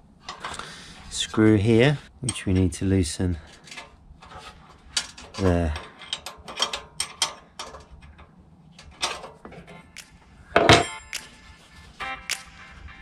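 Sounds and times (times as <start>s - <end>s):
wrench clicking and knocking on metal: 5.0s - 11.0s
ringing metal clank: 10.6s - 11.2s.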